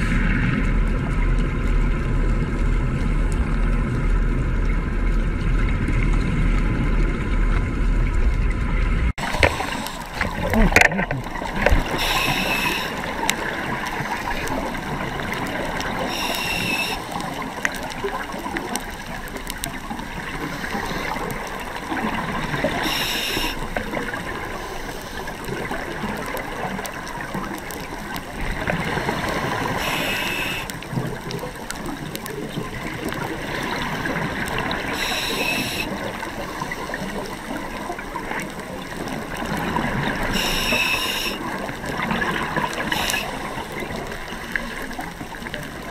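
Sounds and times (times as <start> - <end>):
underwater bubbling and water rush: 0.0 - 45.9
scuba regulator hiss: 11.9 - 13.0, 16.0 - 17.1, 22.8 - 23.6, 29.8 - 30.7, 35.0 - 35.9, 40.3 - 41.4, 42.8 - 43.4.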